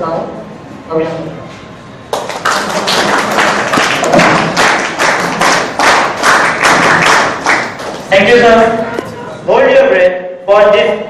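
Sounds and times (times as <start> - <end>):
audience applause: 2.1 - 8.1
loud claps close by: 2.1 - 8.1.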